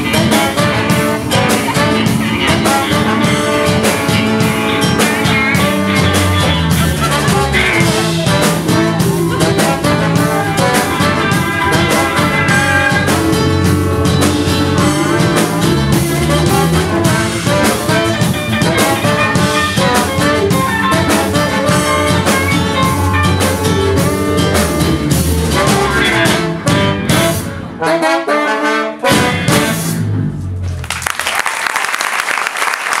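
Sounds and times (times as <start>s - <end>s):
live reggae ska band playing: 0.0s - 30.3s
audience applauding: 30.7s - 33.0s.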